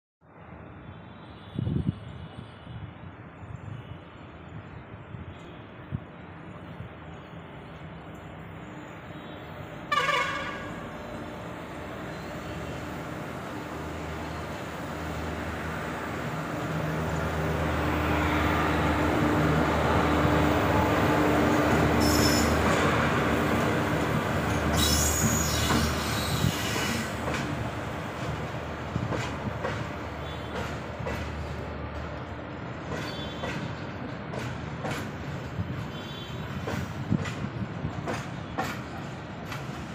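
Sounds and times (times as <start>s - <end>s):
electric locomotive humming: 6.3s - 39.9s
wheel squeals: 22.0s - 22.6s, 24.7s - 27.1s.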